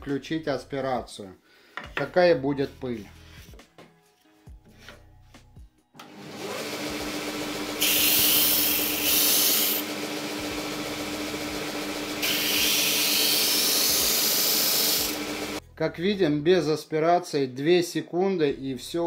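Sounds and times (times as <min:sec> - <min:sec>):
sander motor humming: 0:06.0 - 0:15.6
gritty hiss of wood sanding: 0:07.8 - 0:09.8, 0:12.2 - 0:15.6.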